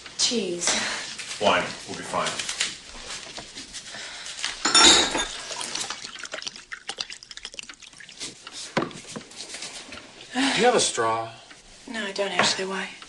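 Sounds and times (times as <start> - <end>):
wine pouring into a glass: 5.0 - 8.5
liquid splash: 5.2 - 8.6.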